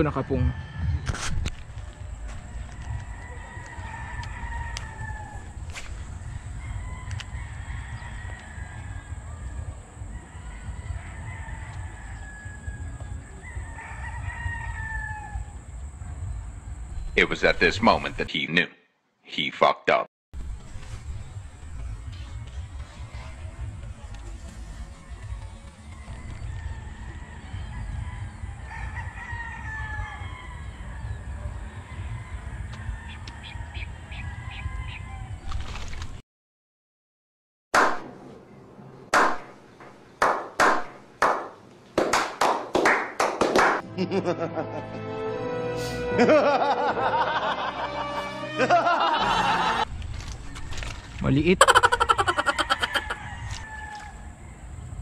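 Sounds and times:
rooster crowing: 0:00.0 - 0:01.3, 0:02.3 - 0:15.7, 0:25.4 - 0:35.4, 0:51.6 - 0:55.0.

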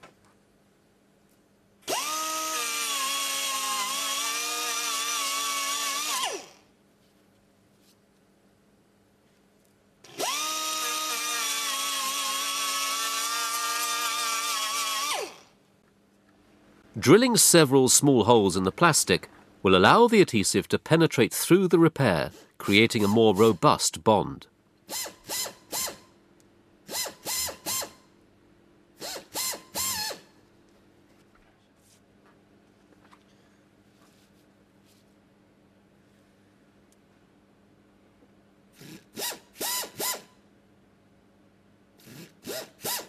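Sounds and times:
electric drill whirring: 0:01.9 - 0:06.6, 0:10.1 - 0:15.5, 0:24.9 - 0:26.1, 0:26.9 - 0:28.0, 0:29.0 - 0:30.3, 0:38.8 - 0:40.3, 0:42.0 - 0:43.0
power tool motor whining: 0:01.9 - 0:06.6, 0:10.1 - 0:15.5.

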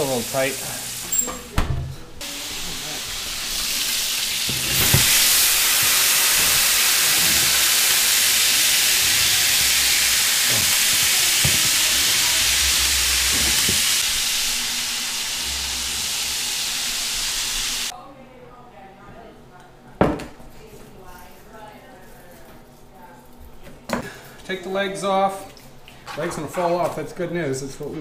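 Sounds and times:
fat sizzling in roasting pan: 0:00.0 - 0:01.2, 0:02.2 - 0:17.9.

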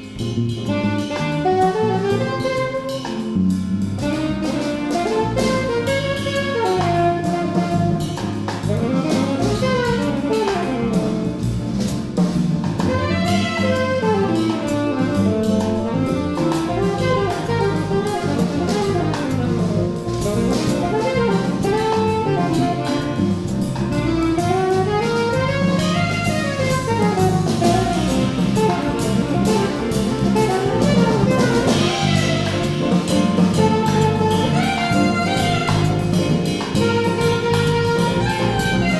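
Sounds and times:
drum kit with cymbal strokes: 0:00.0 - 0:38.9
piano: 0:00.0 - 0:38.9
upright bass: 0:00.0 - 0:38.9
saxophone fast runs: 0:12.8 - 0:38.9.

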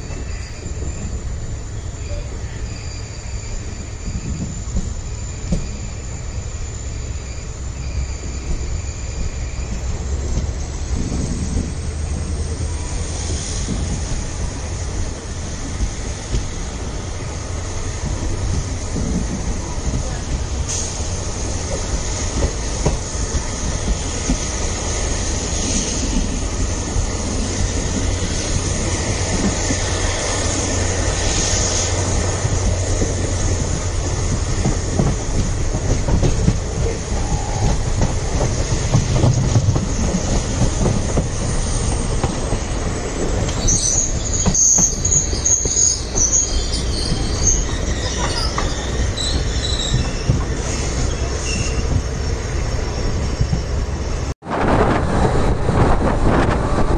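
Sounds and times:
train wheels clattering on rails: 0:00.0 - 0:56.9
high-pitched squeaks: 0:42.9 - 0:54.3.

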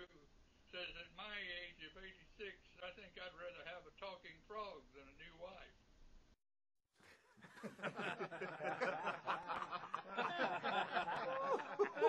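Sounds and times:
people laughing: 0:07.1 - 0:12.0.

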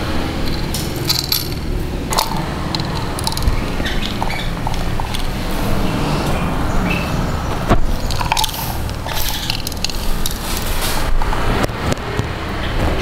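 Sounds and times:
steady low rumble: 0:00.0 - 0:11.8
metal parts clicking and scraping: 0:00.3 - 0:05.7, 0:08.0 - 0:11.4.

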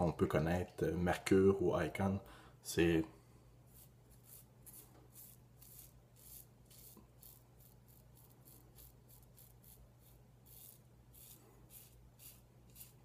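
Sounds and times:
razor scraping stubble: 0:03.7 - 0:13.0.

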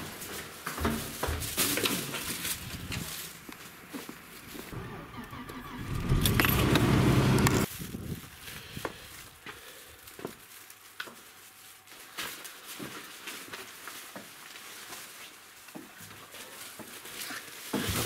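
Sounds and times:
footsteps on wooden boards: 0:00.6 - 0:03.0.

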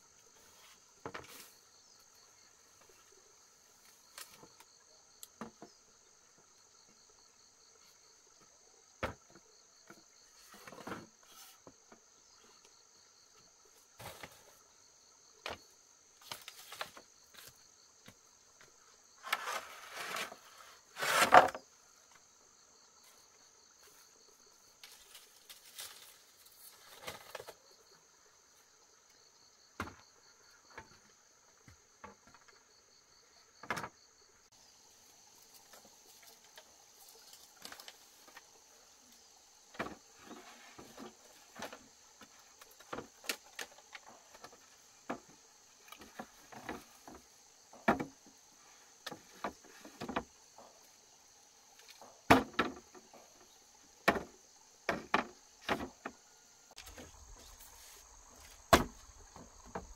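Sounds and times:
knocks and clunks of objects: 0:09.0 - 0:12.0, 0:29.8 - 0:30.1, 0:33.6 - 0:34.0, 0:39.7 - 0:48.3, 0:49.0 - 0:50.8, 0:51.8 - 0:57.6, 0:58.2 - 0:59.9
insect chirring: 0:31.8 - 0:59.9.

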